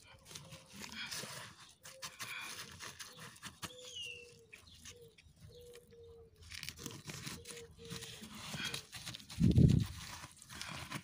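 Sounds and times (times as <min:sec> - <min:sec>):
scraping and crinkling of plastic: 0:00.0 - 0:11.0
bird chirp: 0:00.4 - 0:08.8.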